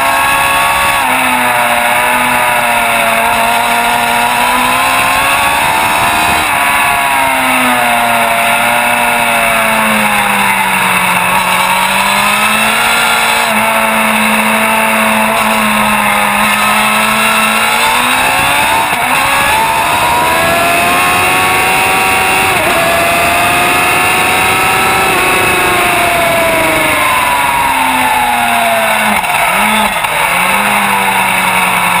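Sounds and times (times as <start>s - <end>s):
motorcycle engine accelerating: 0.0s - 32.0s
wind noise: 2.8s - 8.4s.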